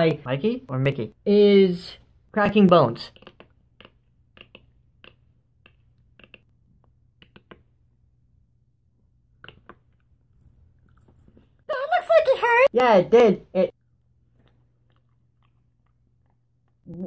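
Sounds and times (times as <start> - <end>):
beatboxer mouth clicks and pops: 3.1 - 6.5, 7.1 - 7.8, 9.4 - 10.0.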